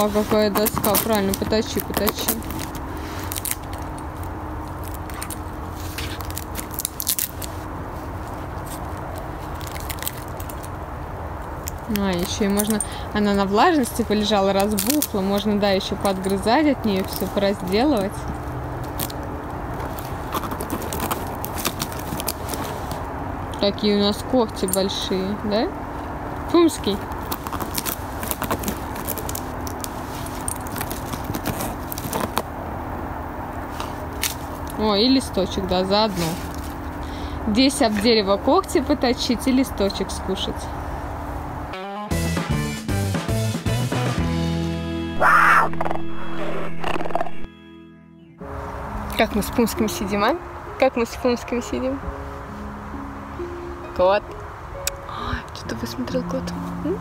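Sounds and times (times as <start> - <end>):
puma gnawing wood: 0.0 - 13.0, 13.8 - 23.1, 27.0 - 32.7
wood crunching and cracking: 0.0 - 13.0, 13.8 - 23.0, 27.0 - 32.6.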